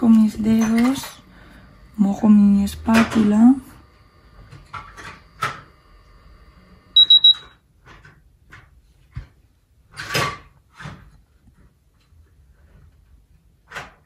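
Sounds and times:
high-pitched electronic beeps: 0:07.0 - 0:07.5.

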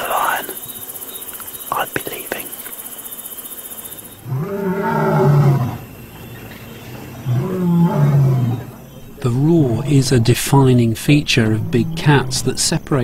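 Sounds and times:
lion roaring: 0:04.2 - 0:05.9, 0:07.1 - 0:10.4, 0:11.2 - 0:12.6.

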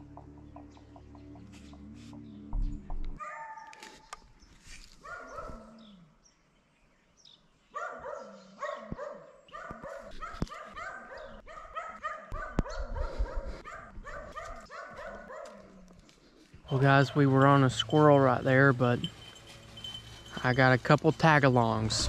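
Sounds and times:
dogs barking: 0:03.2 - 0:03.8, 0:05.0 - 0:05.9, 0:07.7 - 0:16.0, 0:16.7 - 0:22.0.

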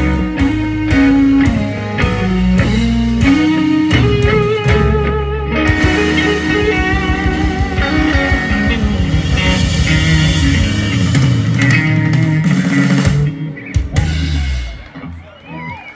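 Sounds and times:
blues-rock band playing loudly: 0:00.0 - 0:15.9.

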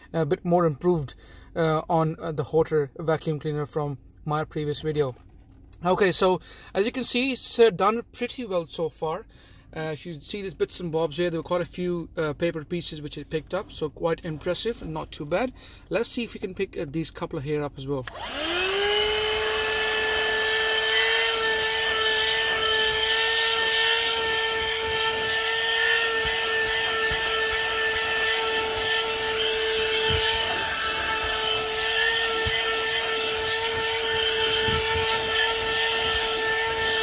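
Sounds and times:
handheld vacuum cleaner running: 0:18.1 - 0:37.0.

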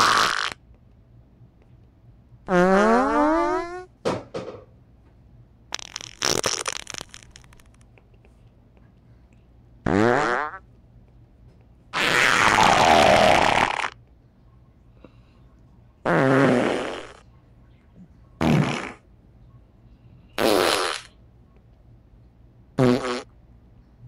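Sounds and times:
farts: 0:00.0 - 0:00.6, 0:02.5 - 0:03.9, 0:05.7 - 0:07.8, 0:09.8 - 0:10.6, 0:12.0 - 0:14.0, 0:16.0 - 0:17.2, 0:18.4 - 0:19.0, 0:20.4 - 0:21.1, 0:22.8 - 0:23.3.

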